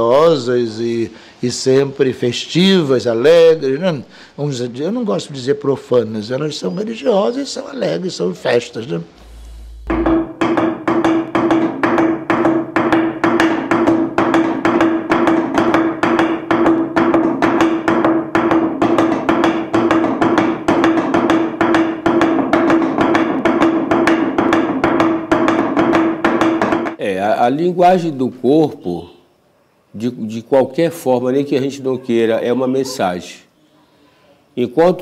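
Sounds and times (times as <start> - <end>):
wooden tubes knocking on board: 9.8 - 27.0.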